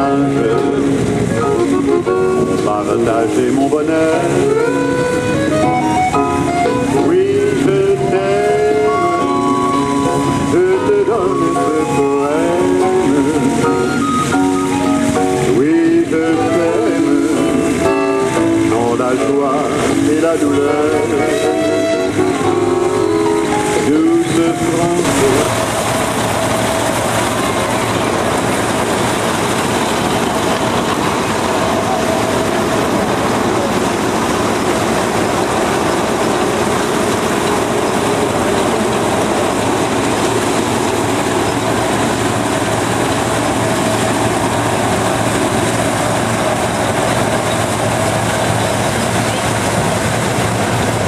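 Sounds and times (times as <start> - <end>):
faint engine drone: 0.0 - 51.0
threshing machine clatter: 23.7 - 51.0.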